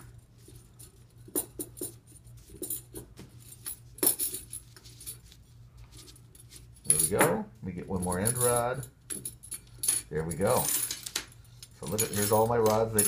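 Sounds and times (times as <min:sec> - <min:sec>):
metal grill rods clinking: 0:09.7 - 0:13.0.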